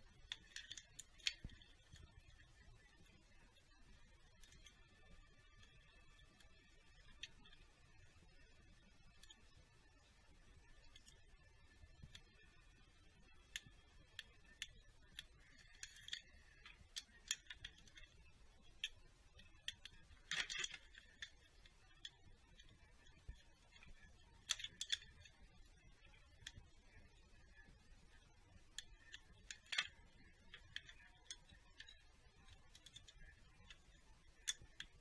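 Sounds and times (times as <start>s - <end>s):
scraping clicks: 0.1s - 9.6s, 13.3s - 35.0s
screwdriver clicks and taps: 28.7s - 35.0s.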